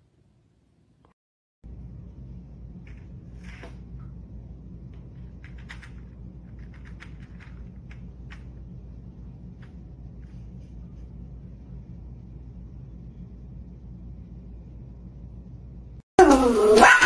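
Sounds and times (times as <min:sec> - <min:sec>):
low hum: 0:00.0 - 0:17.0
toy and paws tapping tiles: 0:05.4 - 0:08.6.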